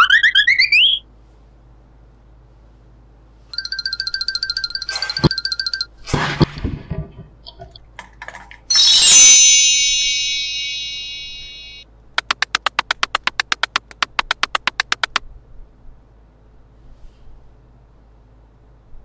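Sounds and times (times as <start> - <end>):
shimmering magic chime: 8.7 - 11.8
rapid sharp clicks: 12.2 - 15.2.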